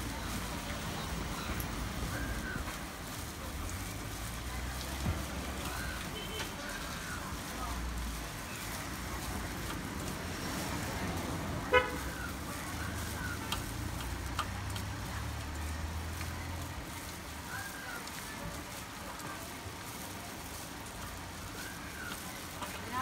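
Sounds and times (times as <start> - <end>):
street traffic: 0.0 - 23.0
vehicle horn toot: 11.7 - 12.0.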